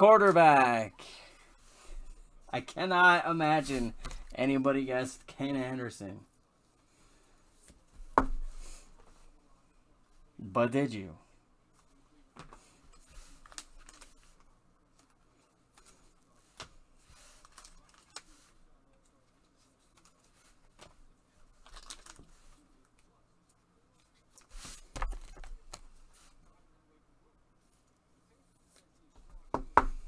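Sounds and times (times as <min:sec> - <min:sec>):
cards and wrappers rustling: 0:12.5 - 0:23.1.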